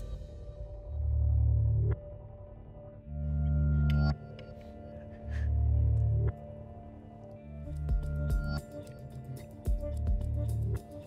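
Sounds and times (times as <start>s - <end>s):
low bass drone: 0.0s - 4.1s.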